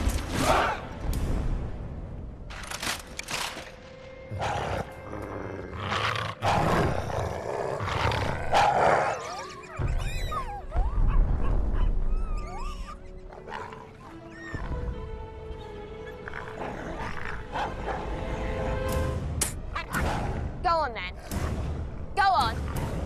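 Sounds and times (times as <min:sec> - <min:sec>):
film music: 0:00.0 - 0:23.0
wolves snarling and growling: 0:04.3 - 0:10.4, 0:11.1 - 0:14.8, 0:16.0 - 0:18.2
high whimpering cries: 0:09.1 - 0:14.8.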